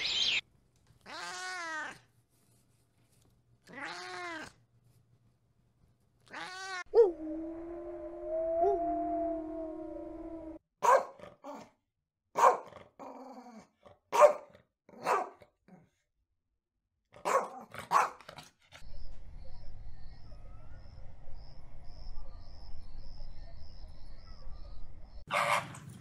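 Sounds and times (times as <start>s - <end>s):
low steady rumble: 7.0s - 10.6s
dog barking: 10.8s - 11.6s, 12.4s - 12.8s, 14.1s - 15.5s, 17.2s - 18.3s, 25.3s - 25.7s.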